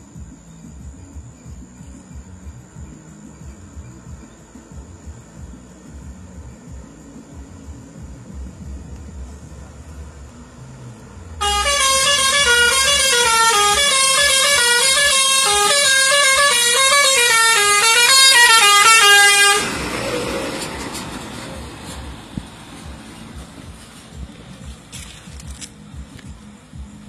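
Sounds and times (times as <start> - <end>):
bus rushing past: 4.7 - 25.3
musical air horn playing a tune: 11.4 - 19.9.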